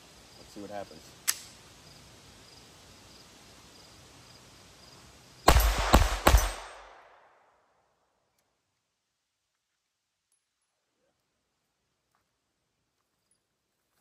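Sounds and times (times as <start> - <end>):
pistol shots echoing: 5.5 - 7.5.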